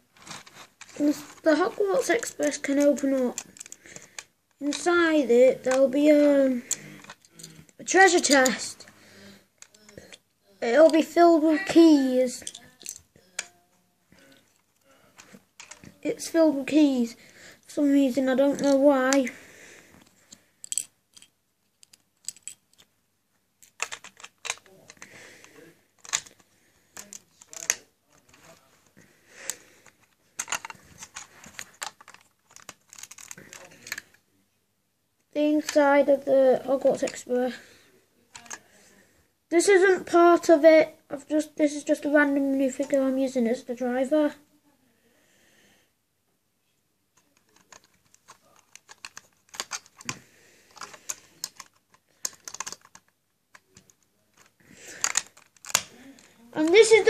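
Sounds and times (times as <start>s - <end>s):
plastic pieces clicking: 0.2s - 8.8s, 9.6s - 10.2s, 12.2s - 13.5s, 14.2s - 15.9s, 18.1s - 19.3s, 20.0s - 22.9s, 23.6s - 25.2s, 26.0s - 26.4s, 27.0s - 28.6s, 29.4s - 34.2s, 38.3s - 38.7s, 47.2s - 57.0s.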